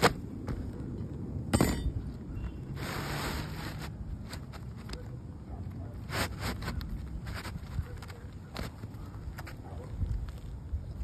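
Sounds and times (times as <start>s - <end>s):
shingle rasping scrape: 2.8s - 5.0s, 6.0s - 9.6s
light taps and scrapes: 3.3s - 10.4s.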